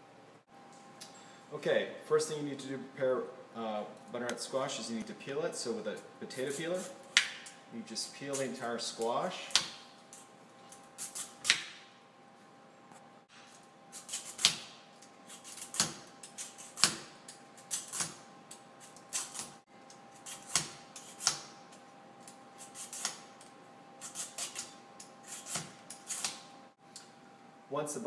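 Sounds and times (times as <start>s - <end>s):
peeler scraping squash skin: 6.4s - 7.0s, 13.9s - 14.6s, 15.2s - 17.0s, 18.8s - 19.6s, 20.2s - 21.4s, 22.6s - 23.2s, 24.0s - 26.4s.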